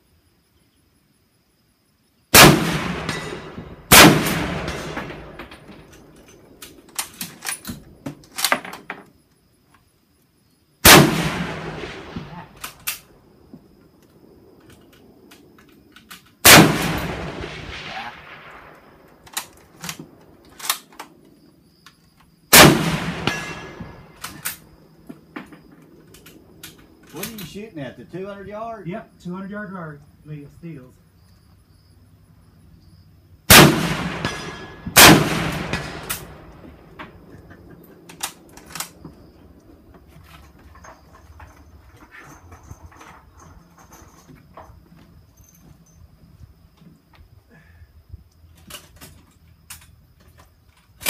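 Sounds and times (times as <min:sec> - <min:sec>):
rifle shots: 0:02.3 - 0:08.5, 0:10.8 - 0:13.1, 0:16.4 - 0:20.9, 0:22.5 - 0:24.8, 0:33.5 - 0:39.0.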